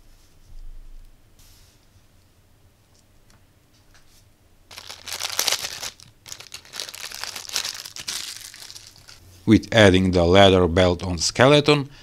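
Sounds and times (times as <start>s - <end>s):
crinkly rustling: 4.7s - 9.2s.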